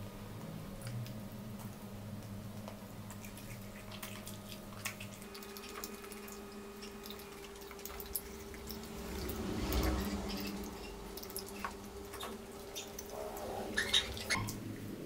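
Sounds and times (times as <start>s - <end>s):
chewing clicks: 0.4s - 14.6s
wet eating sounds: 0.4s - 15.0s
lip smacks: 0.8s - 14.6s.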